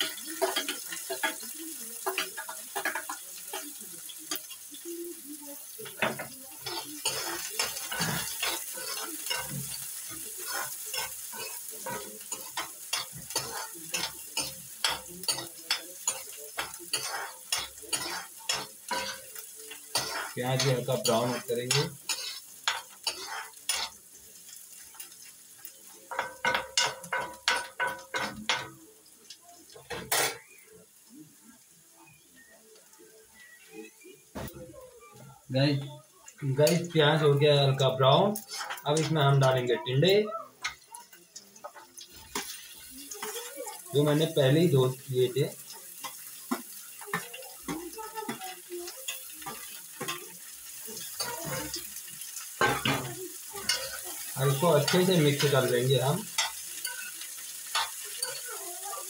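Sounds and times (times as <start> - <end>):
faint sizzle of frying: 0.0 - 59.0
spoon clinking against pan: 5.8 - 24.0, 26.1 - 28.8, 52.6 - 58.6
spoon scraping plate: 20.0 - 23.9, 38.4 - 38.8.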